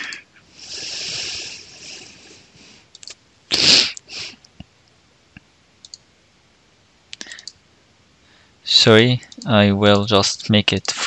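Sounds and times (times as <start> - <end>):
mouse clicks: 5.8 - 6.1.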